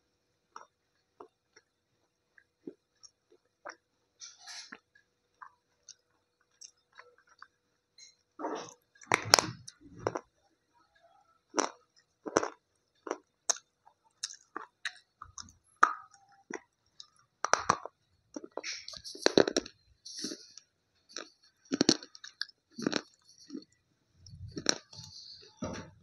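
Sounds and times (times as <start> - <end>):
crunchy chewing of slate pencil: 11.5 - 25.7.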